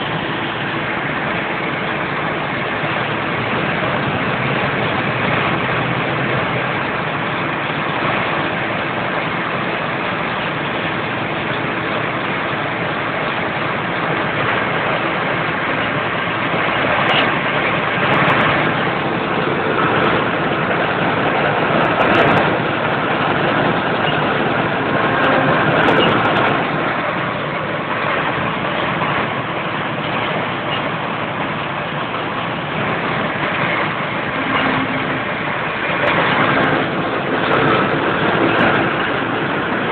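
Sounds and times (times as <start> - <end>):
auger discharging grain: 0.0 - 39.9
combine harvester engine running: 0.0 - 39.9.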